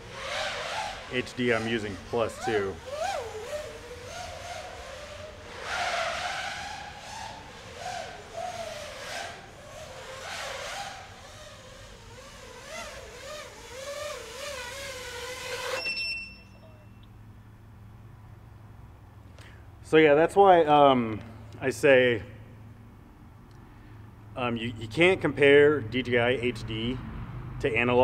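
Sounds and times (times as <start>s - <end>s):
drone motors and propellers whining: 0.0s - 15.9s.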